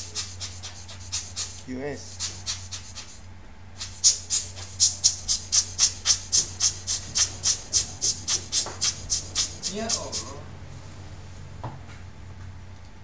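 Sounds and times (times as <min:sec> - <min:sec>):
hand tool scraping fan: 0:00.0 - 0:03.2, 0:03.8 - 0:10.4
steady low hum: 0:00.0 - 0:13.0.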